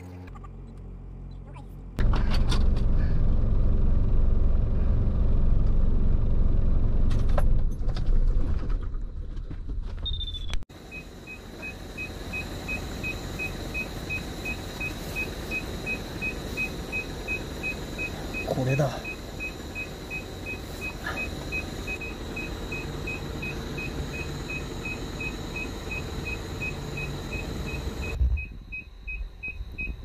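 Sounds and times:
diesel truck engine rumbling: 0.0s - 30.0s
rapid electronic beeping: 10.2s - 30.0s
high whine: 10.7s - 30.0s.

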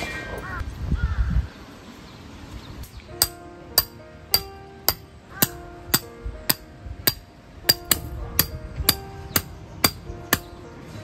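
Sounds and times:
hammer striking metal peg: 3.2s - 10.6s.

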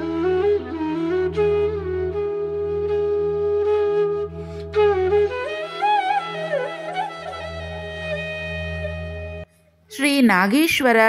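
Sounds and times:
flute melody: 0.0s - 9.5s.

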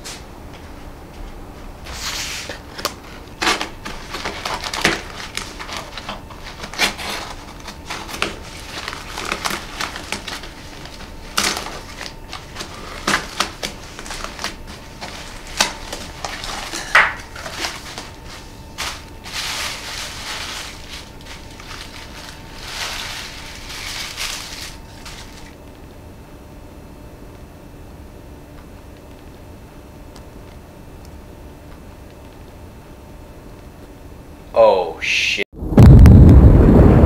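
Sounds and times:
blade slitting tape and cardboard: 1.9s - 18.2s
cardboard ripping: 1.9s - 25.6s
tissue paper rustling: 1.9s - 25.6s
paper wrapping crinkling: 2.4s - 25.6s.

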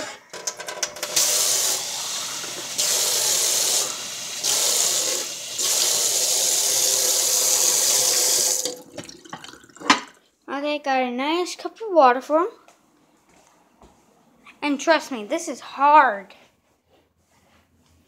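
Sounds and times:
tap water running into sink: 1.0s - 10.2s.

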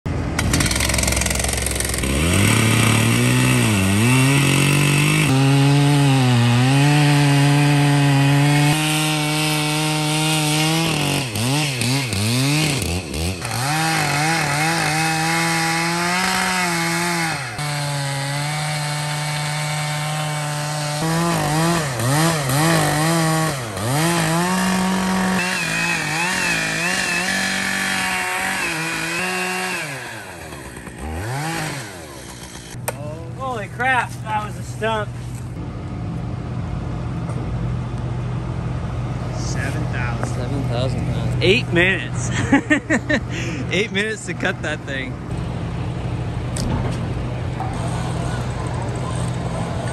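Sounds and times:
chainsaw cutting wood: 0.2s - 33.0s.

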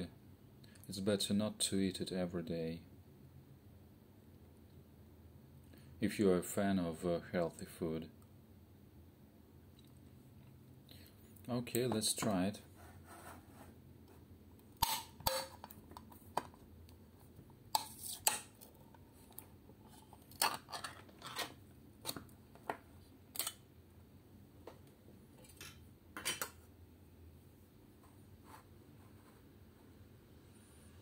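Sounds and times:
metal spoon scraping a tin: 14.8s - 15.7s, 17.7s - 18.5s, 19.9s - 21.6s.

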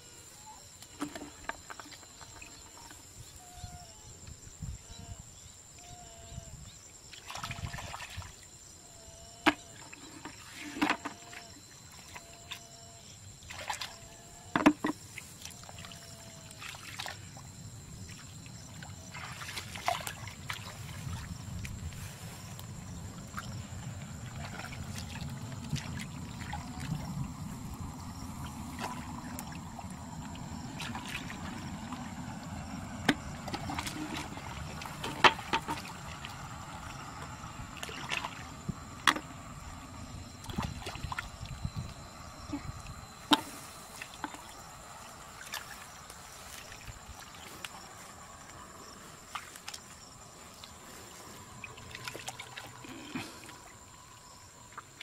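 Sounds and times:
wet squelches: 7.1s - 8.3s, 15.1s - 17.4s, 18.1s - 39.8s, 40.4s - 55.0s.

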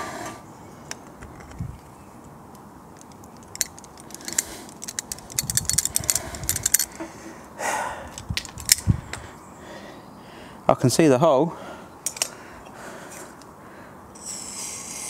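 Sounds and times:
metal tools clinking on metal: 3.0s - 7.0s.

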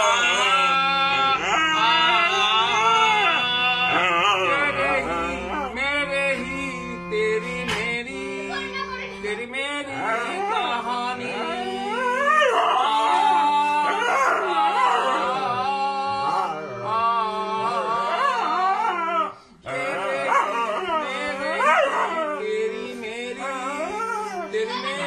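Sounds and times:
dog howling: 0.0s - 5.8s, 11.8s - 16.9s, 17.7s - 22.5s, 23.6s - 24.6s
harmonium chords: 0.0s - 18.8s, 19.6s - 25.0s
man singing: 0.0s - 25.0s.

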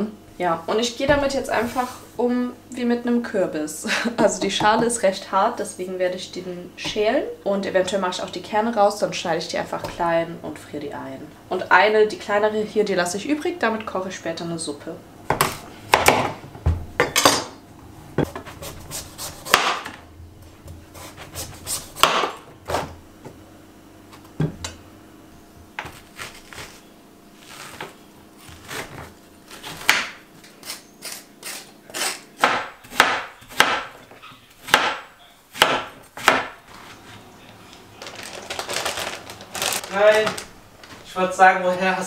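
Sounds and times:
quick repeated chopping: 19.4s - 19.8s.

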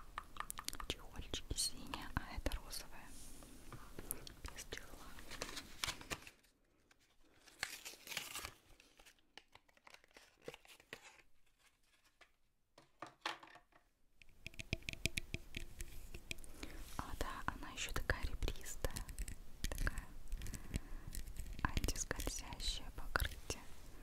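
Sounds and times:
small clicks and taps: 0.0s - 1.0s, 14.2s - 16.5s, 18.6s - 22.6s
packaging tearing and crinkling: 5.3s - 6.5s, 7.4s - 11.7s.

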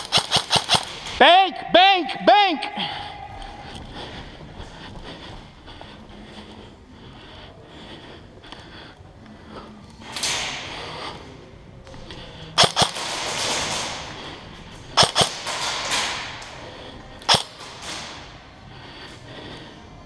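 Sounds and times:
airsoft gun cracks: 0.0s - 1.0s, 12.6s - 13.8s, 15.0s - 16.2s, 17.2s - 18.1s.

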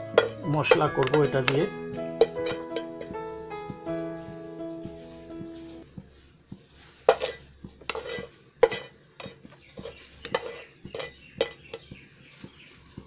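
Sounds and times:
spatula scraping and clinking on pan: 0.0s - 3.1s, 6.9s - 12.0s.

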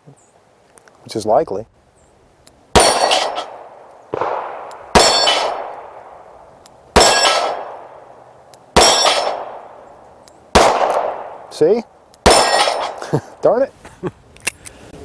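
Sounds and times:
steel plates clanging: 5.0s - 5.6s, 7.0s - 7.6s, 8.8s - 9.4s, 12.3s - 13.0s.

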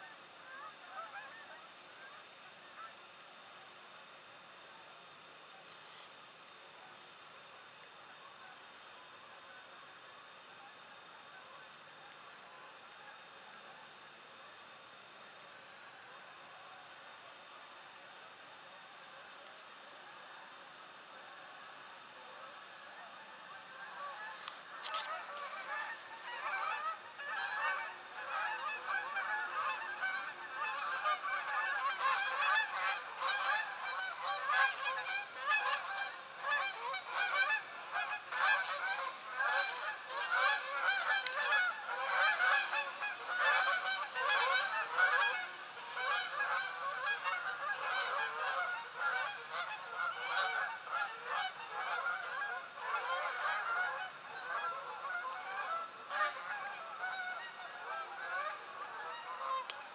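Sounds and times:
geese honking: 0.0s - 3.1s, 21.2s - 59.9s.

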